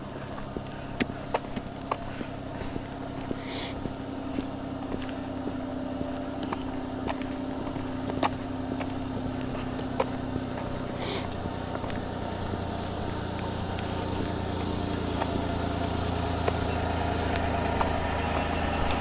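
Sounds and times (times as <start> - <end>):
truck engine idling: 0.0 - 19.0.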